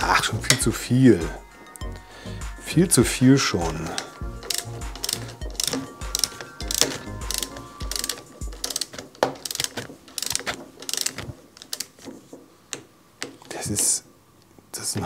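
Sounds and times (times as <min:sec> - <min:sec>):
ratchet wrench clicking: 0:03.6 - 0:12.0.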